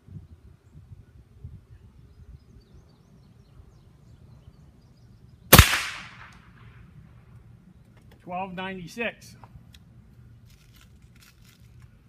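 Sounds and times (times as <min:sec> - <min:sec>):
air rifle shot: 0:05.5 - 0:06.7.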